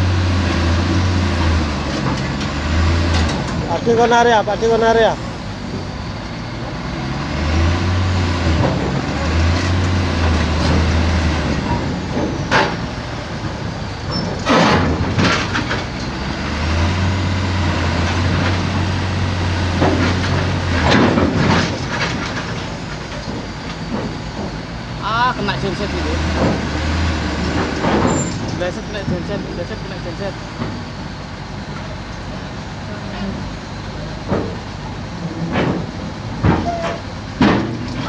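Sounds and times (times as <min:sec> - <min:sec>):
low diesel engine hum: 0:00.0 - 0:38.0
steel clanking and scraping: 0:08.4 - 0:31.9, 0:34.0 - 0:38.0.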